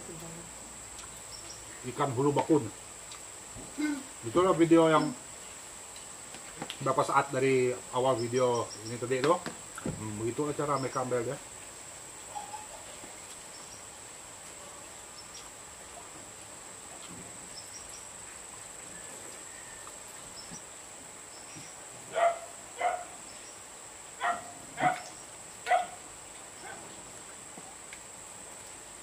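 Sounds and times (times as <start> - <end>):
dog barking: 22.1 - 23.2, 24.2 - 26.0, 26.6 - 26.9.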